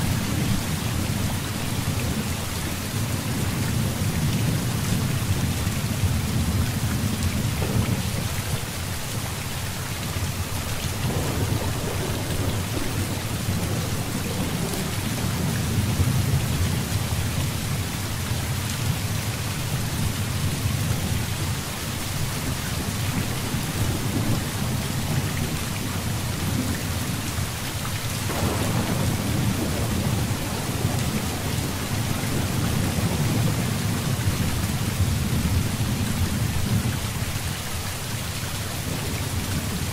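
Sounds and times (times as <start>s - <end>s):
heavy rain: 0.0s - 39.9s
rolling thunder: 6.0s - 8.6s, 11.0s - 17.6s, 28.2s - 36.9s.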